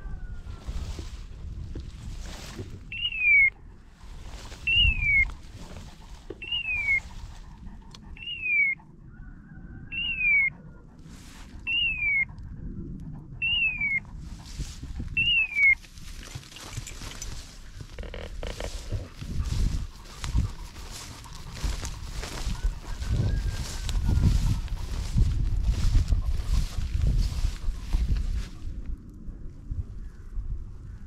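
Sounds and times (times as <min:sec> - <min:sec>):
rustling noise: 0:00.5 - 0:03.0, 0:03.9 - 0:07.8, 0:14.1 - 0:28.9.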